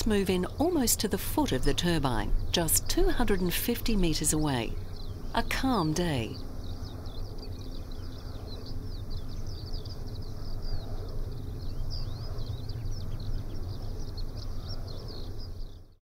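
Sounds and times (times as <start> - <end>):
wind turbine whooshing hum: 0.0 - 15.6
small birds chirping: 0.0 - 16.0.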